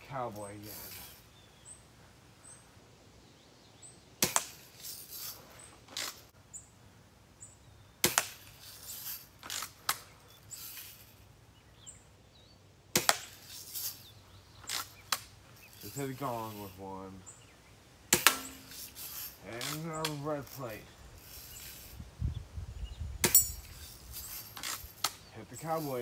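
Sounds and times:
bb gun shots: 18.1s - 18.7s.

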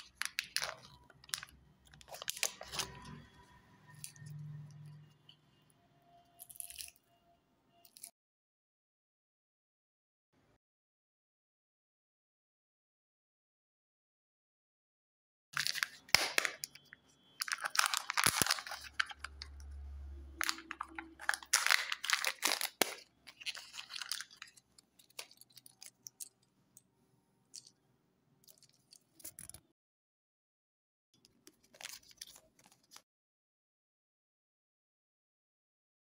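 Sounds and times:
foil wrapper crinkling and tearing: 0.0s - 3.3s, 15.6s - 19.8s, 20.4s - 26.3s, 31.5s - 33.0s
paper leaflet rustling: 15.6s - 16.8s, 17.4s - 19.6s, 20.4s - 25.9s.

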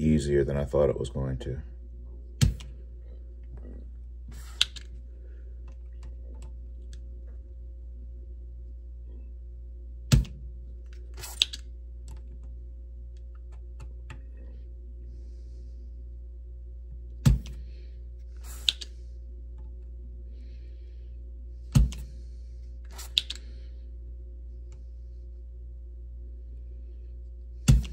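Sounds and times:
steady low hum: 0.0s - 27.9s
hissy click: 18.4s - 19.0s, 22.9s - 23.4s.

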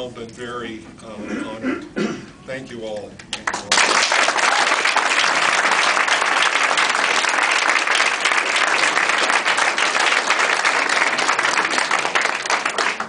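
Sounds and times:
crowd applauding: 3.3s - 13.0s.

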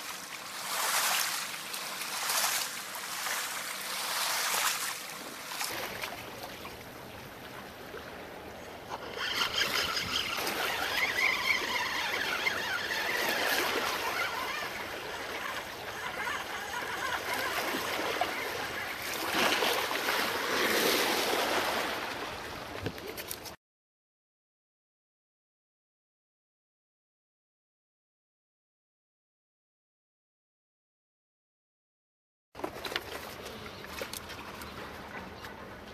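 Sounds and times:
sea water splashing on rocks: 0.1s - 6.2s.

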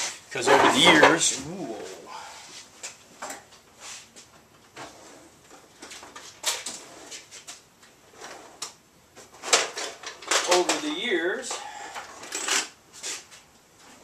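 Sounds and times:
objects clicking and knocking: 9.4s - 10.9s.

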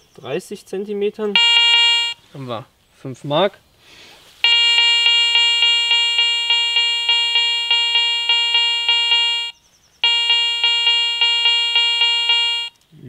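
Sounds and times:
metal detector beeping: 1.4s - 2.2s, 4.4s - 12.8s.

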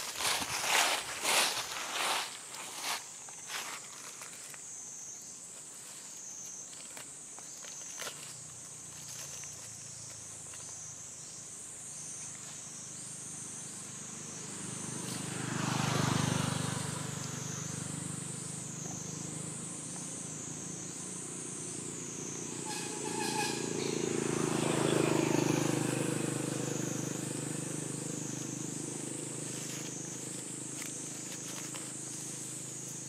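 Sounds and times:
pulsing insect chorus: 0.0s - 33.0s
motor vehicle passing: 12.8s - 33.0s.

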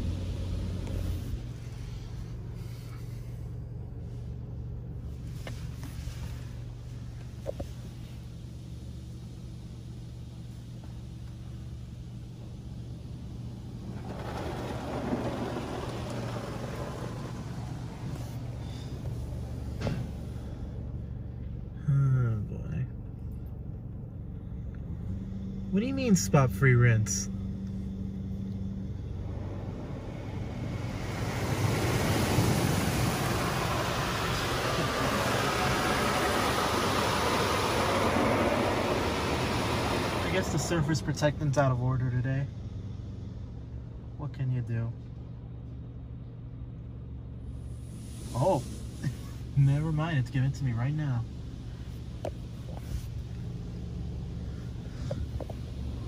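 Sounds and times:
water jets spraying car: 0.0s - 21.6s, 25.7s - 42.2s, 47.4s - 56.0s
steady low hum: 0.0s - 56.0s
high-pressure water spray on roof: 13.8s - 18.6s, 30.8s - 40.7s.

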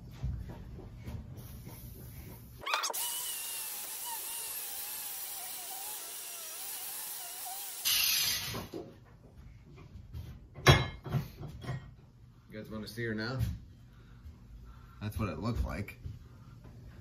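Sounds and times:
power grinder whining on metal: 2.6s - 8.7s.

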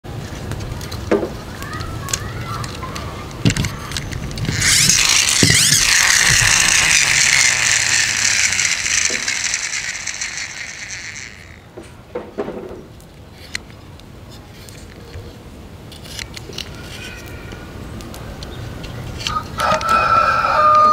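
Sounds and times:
toy gears whirring: 1.6s - 11.8s, 15.9s - 17.4s.

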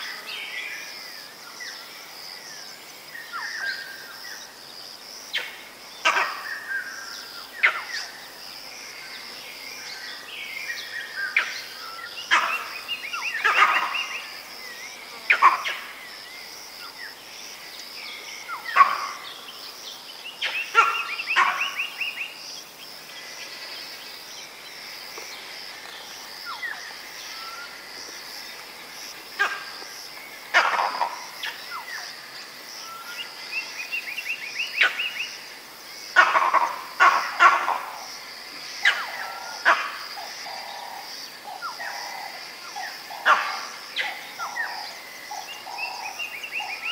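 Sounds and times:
monkey alarm calls: 6.0s - 6.6s, 12.3s - 12.7s, 13.3s - 14.2s, 18.6s - 19.2s, 20.7s - 21.9s, 30.5s - 31.2s, 36.2s - 37.9s.

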